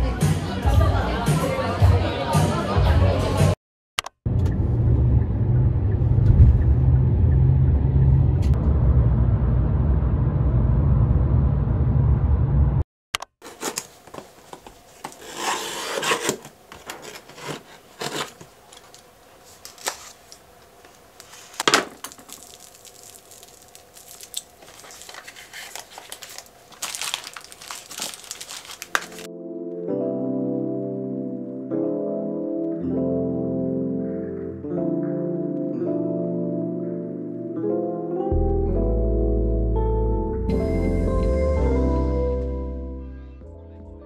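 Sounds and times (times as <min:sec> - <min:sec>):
road rumble inside car: 0:04.3 - 0:12.8
paper tearing and scraping: 0:14.9 - 0:20.4, 0:21.2 - 0:29.3
knife slitting cardboard box: 0:15.0 - 0:18.5.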